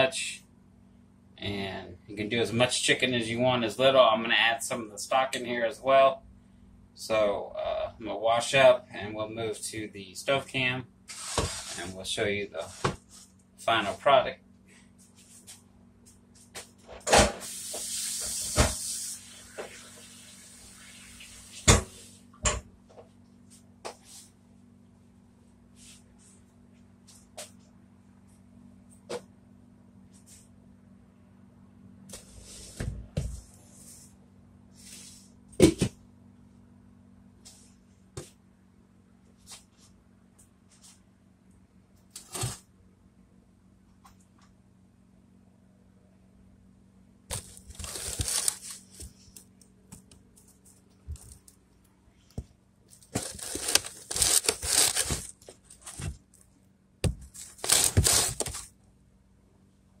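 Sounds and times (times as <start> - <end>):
steady low hum: 0.0 - 17.7, 19.2 - 60.0
rustling: 47.3 - 49.3, 52.9 - 56.2, 57.3 - 58.7.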